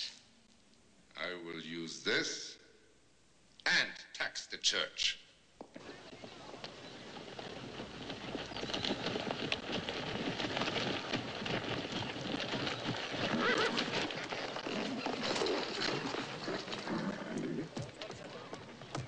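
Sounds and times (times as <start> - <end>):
horse hooves clopping: 5.6 - 19.0
horse whinnying: 7.6 - 18.7.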